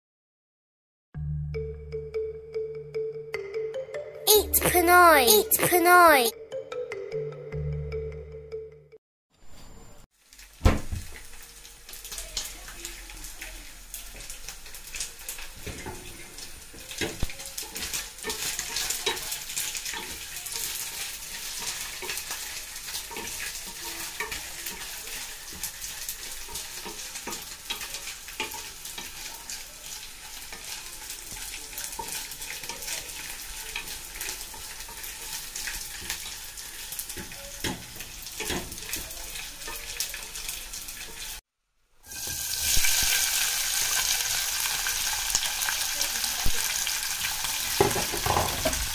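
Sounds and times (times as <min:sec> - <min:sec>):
oil sizzling and popping: 0:10.1 - 0:48.9.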